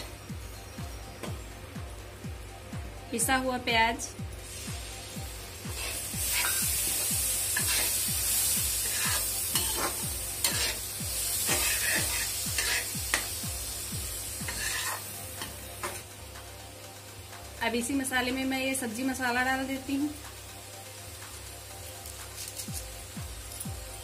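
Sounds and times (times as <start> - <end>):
onion paste sizzling in hot oil: 4.3 - 16.4, 17.0 - 24.0
steel ladle scraping pan: 14.5 - 15.1.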